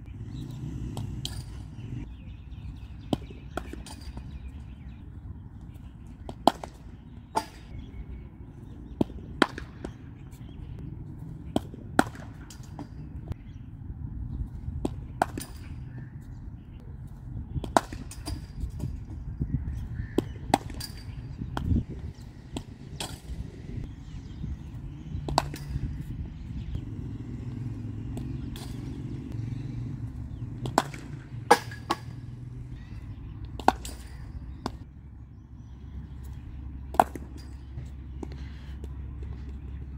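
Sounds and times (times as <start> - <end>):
low steady rumble: 0.0 - 5.8, 20.9 - 39.9.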